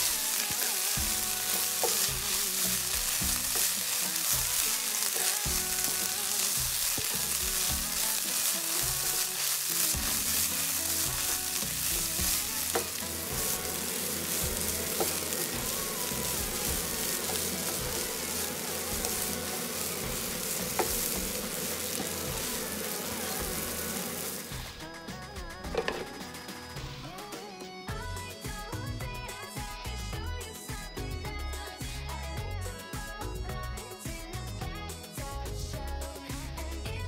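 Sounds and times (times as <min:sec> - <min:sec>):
rice and vegetables sizzling in oil: 0:00.0 - 0:27.3.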